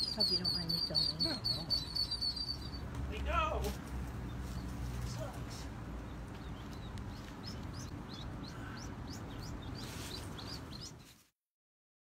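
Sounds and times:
ducklings peeping: 0:00.0 - 0:02.8, 0:06.0 - 0:11.1.

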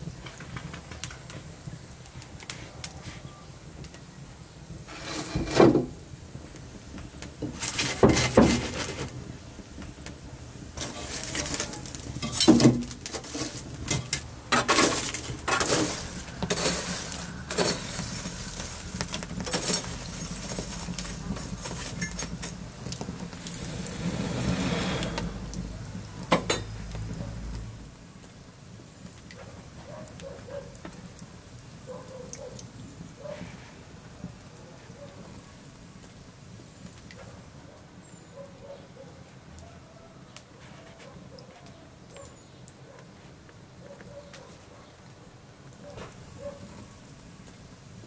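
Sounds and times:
embers clinking and clattering: 0:10.8 - 0:23.9, 0:25.5 - 0:26.8.

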